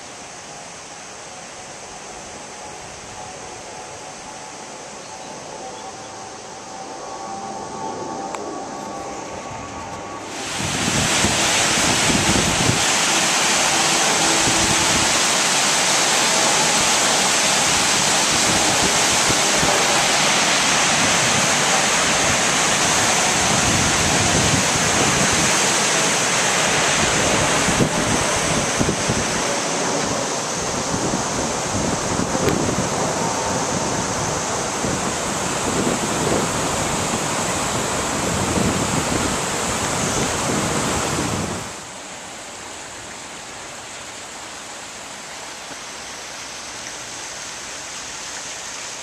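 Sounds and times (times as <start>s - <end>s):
water rushing over weir: 0.0s - 49.0s
wind buffeting microphone: 6.7s - 15.7s, 17.2s - 41.8s.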